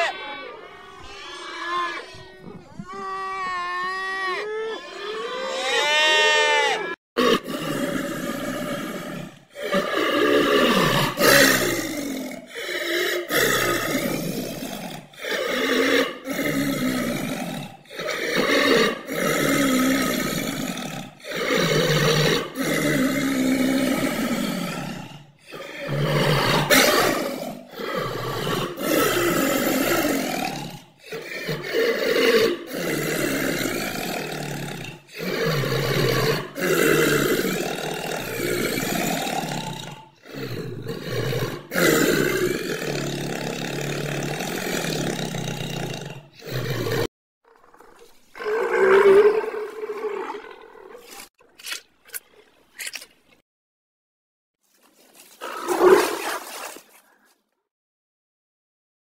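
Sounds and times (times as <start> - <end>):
leopard growling and roaring: 7.2 - 51.4, 55.2 - 56.6.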